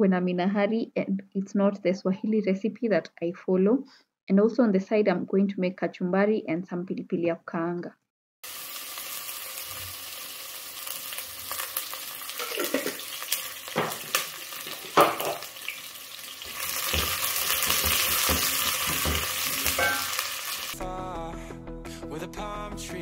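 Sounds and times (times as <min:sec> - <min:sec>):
food sizzling in hot oil: 0:08.4 - 0:20.8
utensil clinking against pan: 0:17.8 - 0:20.2.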